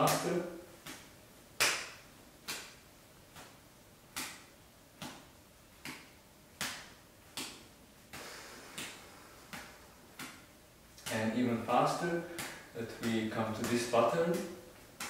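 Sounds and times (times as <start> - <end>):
juggling balls landing in palms: 0.0 - 15.0.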